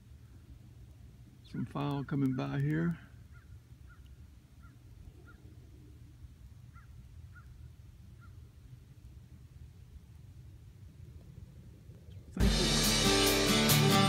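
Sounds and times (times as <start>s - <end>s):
low rumble of wind: 0.0s - 12.4s
distant bird calling: 1.4s - 8.8s.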